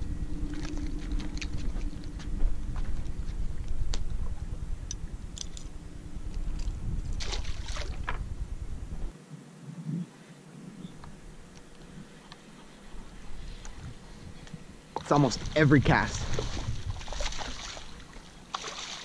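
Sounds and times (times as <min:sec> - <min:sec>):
microphone handling noise: 0:00.0 - 0:09.1
low wind rumble: 0:00.0 - 0:18.5
fish splash: 0:07.2 - 0:08.0, 0:16.2 - 0:19.0.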